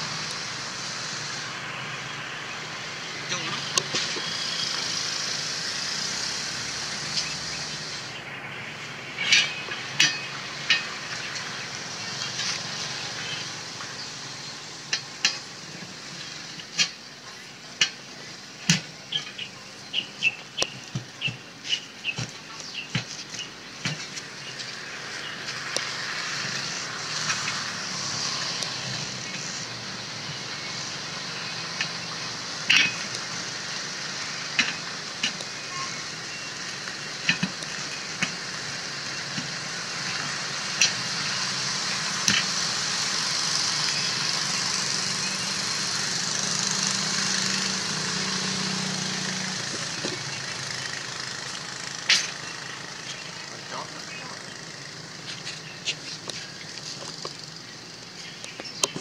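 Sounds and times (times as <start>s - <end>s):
steady hiss: 0.0s - 19.1s.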